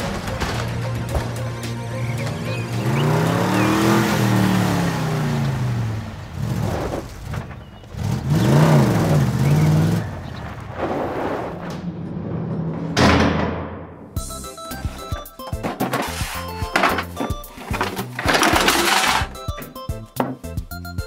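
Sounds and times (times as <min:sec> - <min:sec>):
engine revving sound effect: 0:02.0 - 0:07.4
toy truck being pushed: 0:14.3 - 0:20.4.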